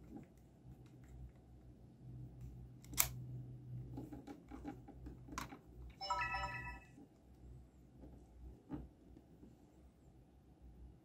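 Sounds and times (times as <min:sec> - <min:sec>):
electronic chime: 0:06.0 - 0:06.9.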